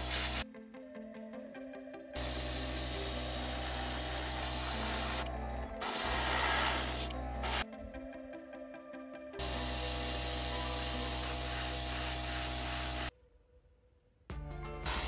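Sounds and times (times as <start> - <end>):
airbrush spraying hiss: 0.0 - 0.4, 2.2 - 7.6, 9.4 - 13.1
background music: 0.0 - 15.0.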